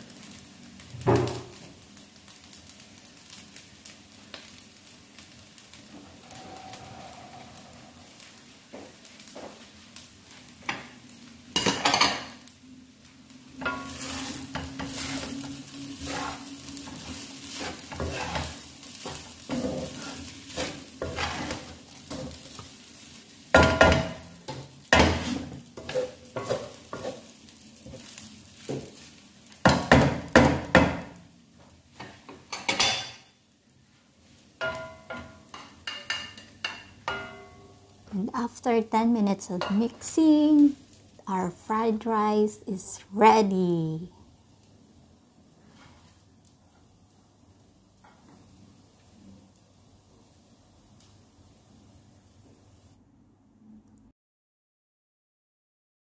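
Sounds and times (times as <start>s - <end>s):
rice sizzling: 0.0s - 53.0s
spatula scraping a wok: 6.0s - 8.2s, 13.6s - 29.8s, 39.5s - 40.1s, 45.6s - 46.2s.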